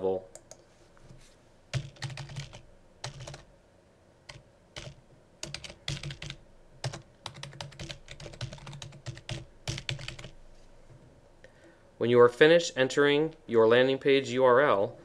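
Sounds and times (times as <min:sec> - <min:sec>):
typing on computer keyboard: 0:01.7 - 0:03.5, 0:04.3 - 0:10.4.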